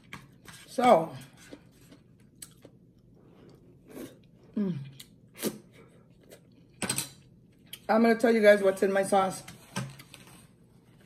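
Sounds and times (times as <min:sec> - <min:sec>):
soft chewing clicks: 0:01.9 - 0:03.6.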